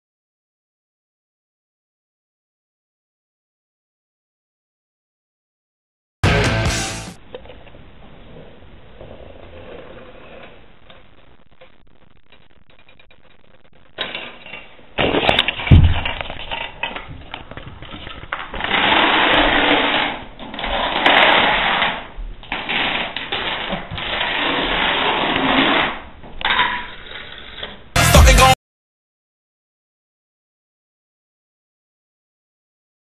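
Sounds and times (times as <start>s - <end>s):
dominoes toppling on hardwood floor: 15.0s - 27.6s
heavy thud: 15.7s - 16.1s.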